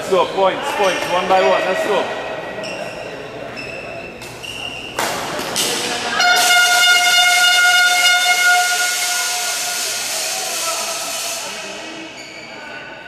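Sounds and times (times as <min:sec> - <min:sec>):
long horn blast: 0:06.2 - 0:11.4.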